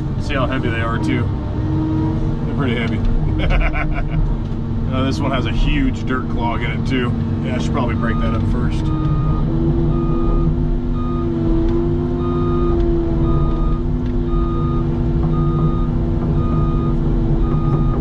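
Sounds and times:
excavator diesel engine running: 0:00.0 - 0:18.0
warning alarm beeping: 0:07.6 - 0:18.0.

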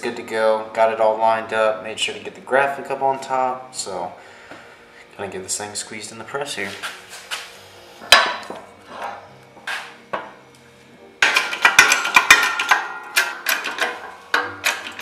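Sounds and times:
metal mold clacking on press: 0:11.2 - 0:15.0
sharp metal clicks and knocks: 0:11.2 - 0:15.0.

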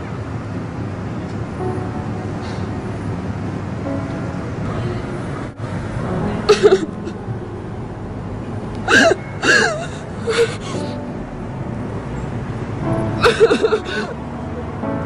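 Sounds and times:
woman sobbing: 0:06.5 - 0:07.2, 0:08.9 - 0:11.0, 0:13.2 - 0:14.2.

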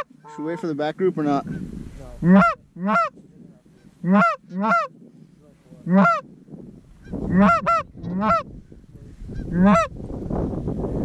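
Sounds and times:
goose honking: 0:00.0 - 0:00.8, 0:01.4 - 0:03.2, 0:04.0 - 0:04.9, 0:05.8 - 0:06.2, 0:07.0 - 0:08.5, 0:09.4 - 0:09.9.

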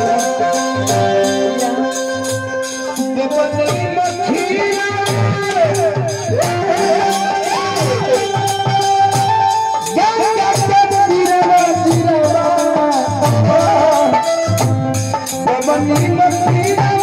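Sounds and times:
drum beat: 0:03.1 - 0:17.0
melody notes: 0:05.2 - 0:11.2
gliding sliding notes: 0:06.4 - 0:10.0.

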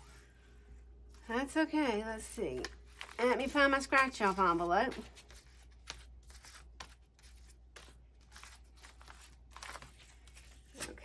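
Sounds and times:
paper envelopes rustling: 0:02.4 - 0:11.0.

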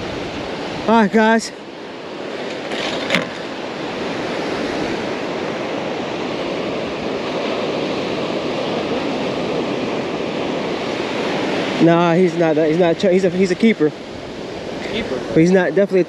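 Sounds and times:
surf breaking on beach: 0:00.0 - 0:16.0
wind: 0:00.0 - 0:16.0.

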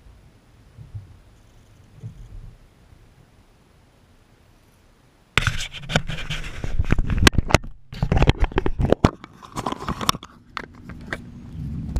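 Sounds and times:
fingers rubbing camera housing: 0:05.4 - 0:07.4.

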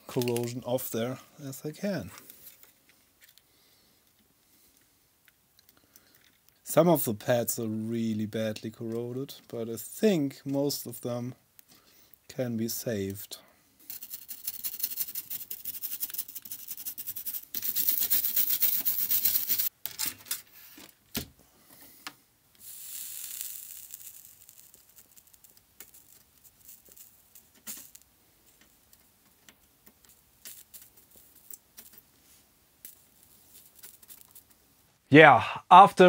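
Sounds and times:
faint scratches and ticks: 0:13.9 - 0:19.7, 0:23.2 - 0:34.6
scratchy hissing of soldering: 0:21.9 - 0:28.9.

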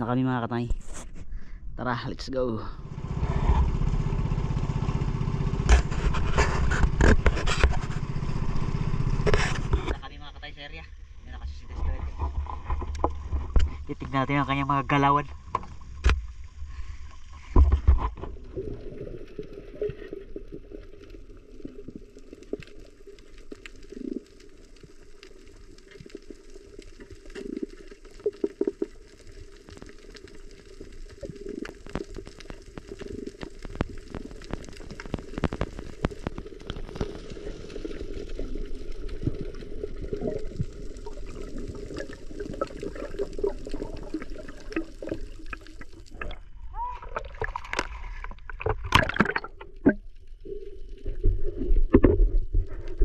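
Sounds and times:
crackling clicks and bubbling: 0:00.0 - 0:53.0
muffled underwater rumble: 0:02.5 - 0:53.0
splash: 0:21.6 - 0:50.0.

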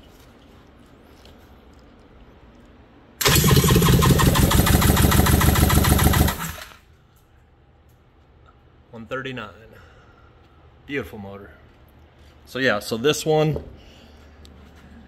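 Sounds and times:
engine cranking without firing: 0:03.2 - 0:06.8.

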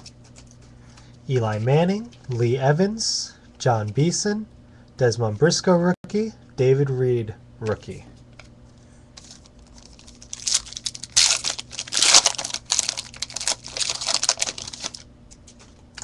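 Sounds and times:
foil wrapper tearing and crinkling: 0:09.2 - 0:15.1.

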